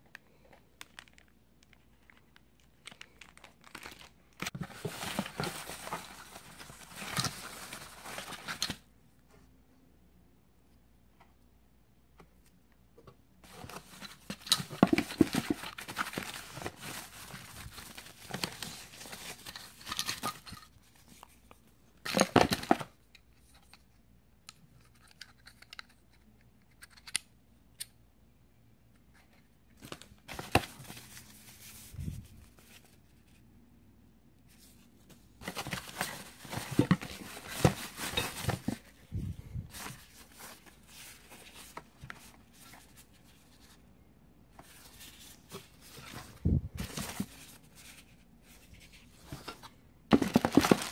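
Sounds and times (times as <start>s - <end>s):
plastic bags rustling: 2.0s - 8.8s, 13.5s - 20.3s, 35.4s - 41.8s, 50.1s - 50.9s
small knocks in cardboard box: 50.1s - 50.9s.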